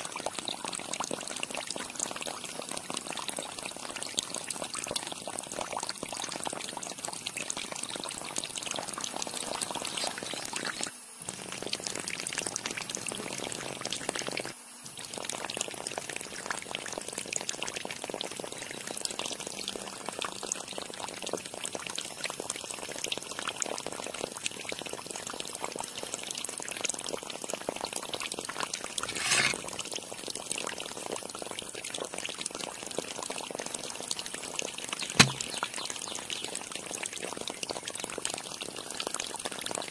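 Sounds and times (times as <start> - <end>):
water pouring and splashing: 0.0 - 18.6, 28.2 - 35.8.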